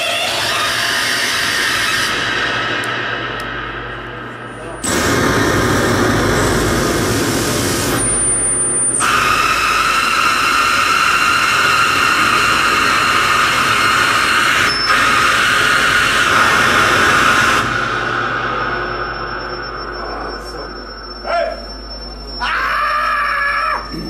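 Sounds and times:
distorted electronic noise: 0.0s - 24.0s
steady high whine: 0.0s - 24.0s.

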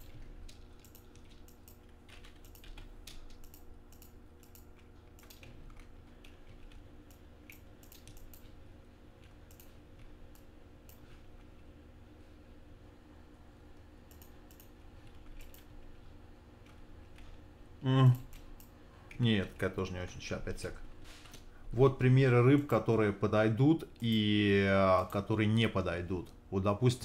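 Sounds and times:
computer keyboard and mouse clicks: 0.0s - 8.6s, 9.2s - 11.0s, 14.1s - 15.8s
low steady hum: 0.0s - 27.0s.

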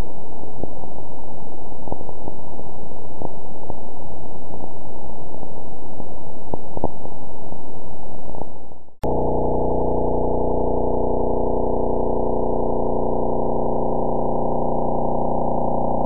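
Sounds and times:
rushing static: 9.0s - 16.0s.

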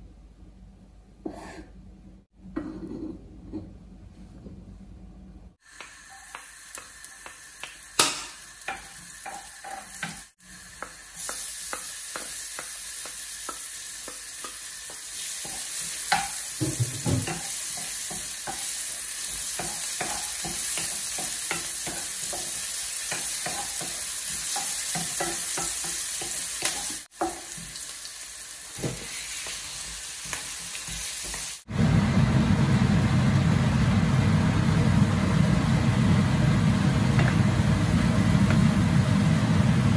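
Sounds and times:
wooden spoon scraping a pan: 1.2s - 1.8s
onion sizzling in a pan: 5.6s - 39.9s
loud low hum: 31.7s - 39.9s.

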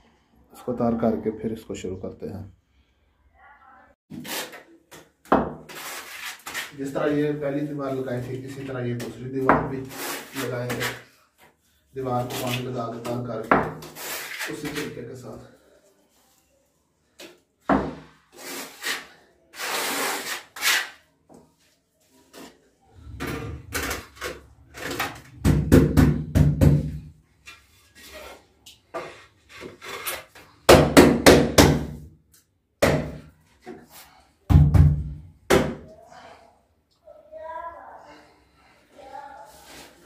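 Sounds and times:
trowel scraping adhesive: 5.7s - 6.8s, 9.8s - 11.0s, 18.3s - 21.0s, 27.9s - 30.5s.

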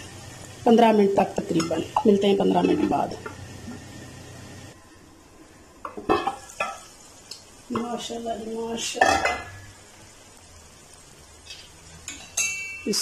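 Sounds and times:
metal pot lid clanking: 1.6s - 3.4s, 5.9s - 6.8s, 9.0s - 9.6s.

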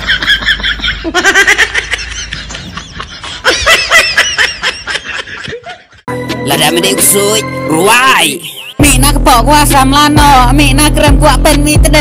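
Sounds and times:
high-pitched giggling laughter: 0.0s - 6.1s.

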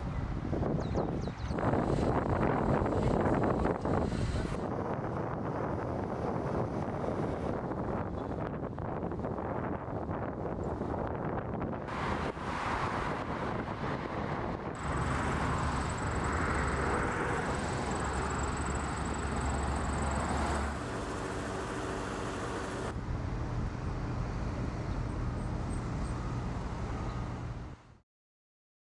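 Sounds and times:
street sound: 11.6s - 27.8s
traffic on wet road: 11.8s - 23.0s
heavy machine engine whining: 14.8s - 23.0s.

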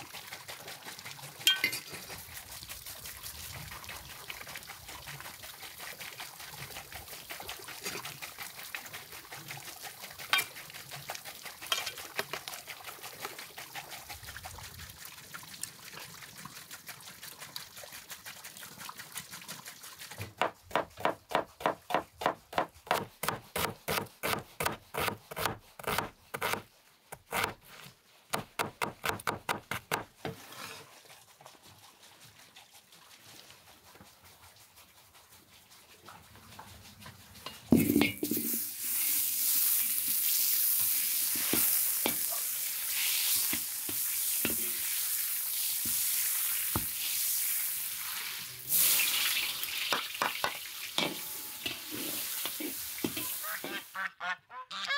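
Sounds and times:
knife chopping on wooden board: 20.4s - 26.6s, 27.2s - 27.6s, 28.3s - 30.1s.

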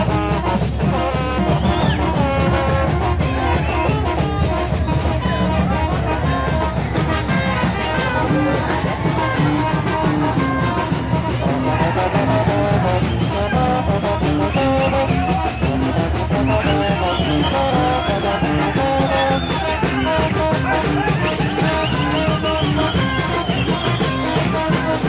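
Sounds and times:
brass band playing: 0.0s - 25.0s
steady drum beat: 0.0s - 25.0s.

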